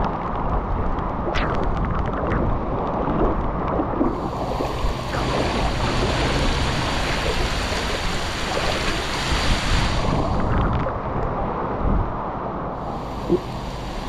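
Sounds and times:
wind buffeting the microphone: 0:00.0 - 0:14.0
water rushing: 0:01.5 - 0:11.2, 0:12.8 - 0:14.0.

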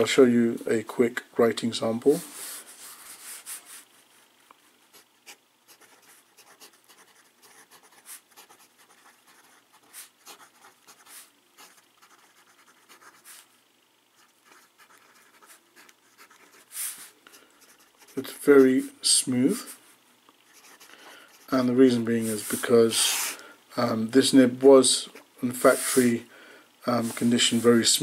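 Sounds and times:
pen nib scratching on paper: 0:05.2 - 0:13.5, 0:14.2 - 0:18.4.

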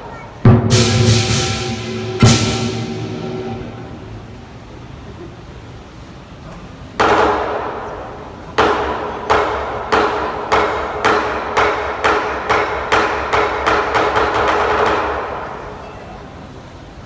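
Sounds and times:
cymbals and gong striking: 0:00.4 - 0:05.0.

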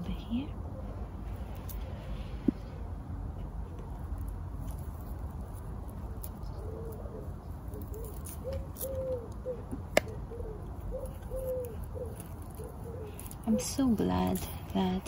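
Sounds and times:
bird cooing: 0:06.4 - 0:13.8.

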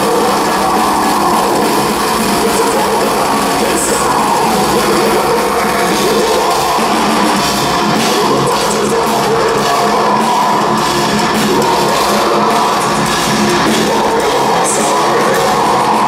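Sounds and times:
distorted electric guitars: 0:00.0 - 0:16.0
drum kit: 0:00.0 - 0:16.0
heavy metal band playing live: 0:00.0 - 0:16.0.

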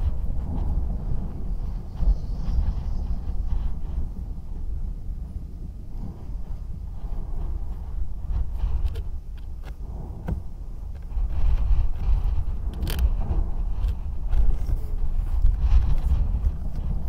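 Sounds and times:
gusty wind buffeting microphone: 0:00.0 - 0:17.0.

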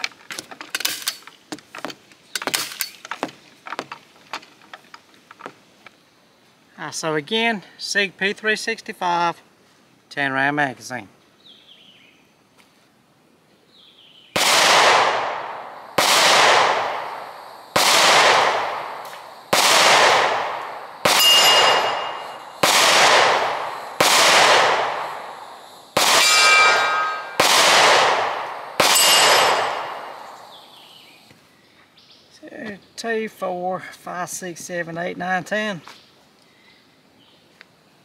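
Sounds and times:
pistol shots: 0:14.4 - 0:30.6
metallic ring: 0:21.1 - 0:22.5, 0:26.2 - 0:27.4, 0:28.9 - 0:29.8.

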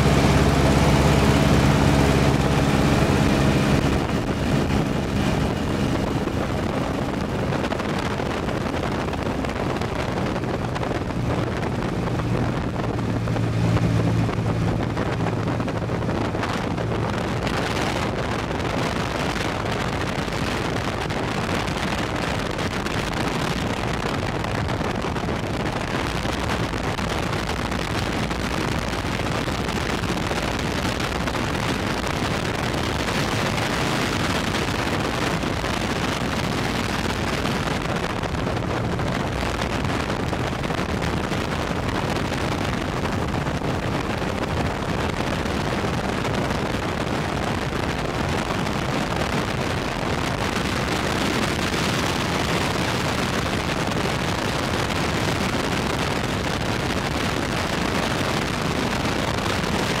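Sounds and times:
aircraft engine drone: 0:00.0 - 0:08.2
wind buffeting microphone: 0:00.0 - 1:00.0.

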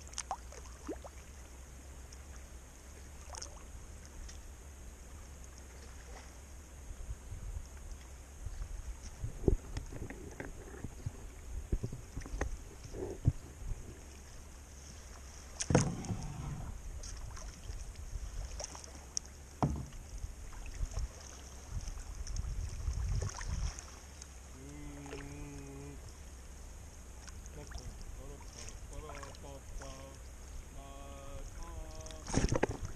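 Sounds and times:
paddle splashes and drips: 0:00.0 - 0:06.6, 0:14.0 - 0:26.3, 0:26.9 - 0:32.9
knocks against plastic hull: 0:15.7 - 0:16.2, 0:19.6 - 0:20.0.

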